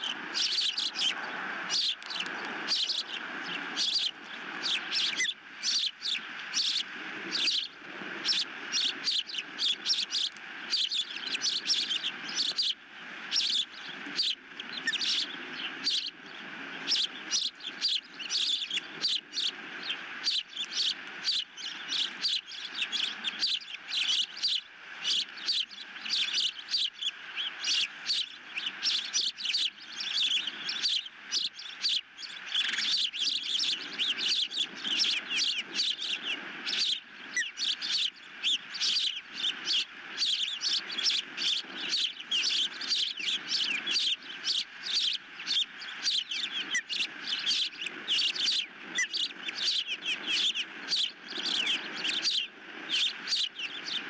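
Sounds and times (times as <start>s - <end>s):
ospreys chirping: 0.0s - 54.0s.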